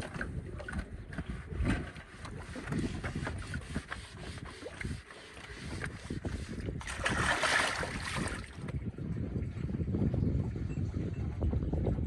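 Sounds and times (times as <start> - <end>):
water sloshing and splashing: 0.0 - 9.8
wet cloth scrubbing: 1.2 - 8.4.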